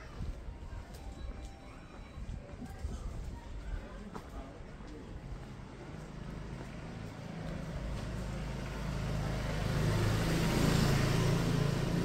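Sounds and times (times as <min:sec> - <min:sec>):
road noise: 0:04.5 - 0:12.0
vehicle engine approaching: 0:05.7 - 0:12.0.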